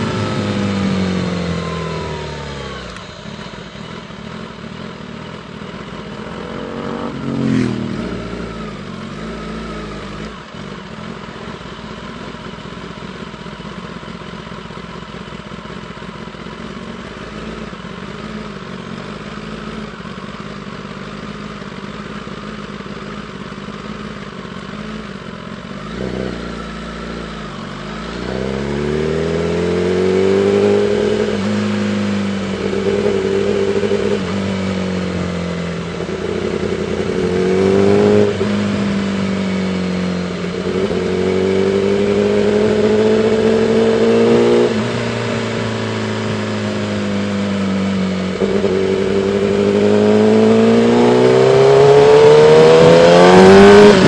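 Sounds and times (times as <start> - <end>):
motorcycle engine revving: 0.0 - 54.0
wind and road noise: 5.0 - 10.6, 25.7 - 54.0.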